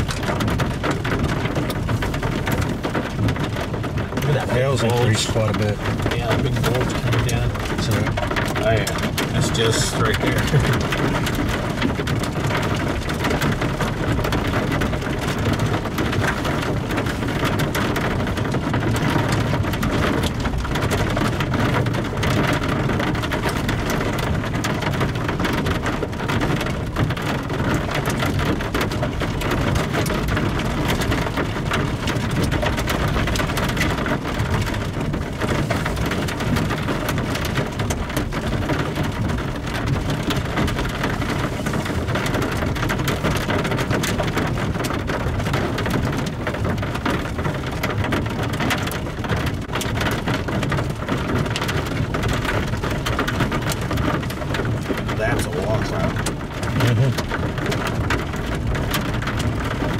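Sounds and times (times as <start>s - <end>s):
heavy rain and hail falling: 0.0s - 59.9s.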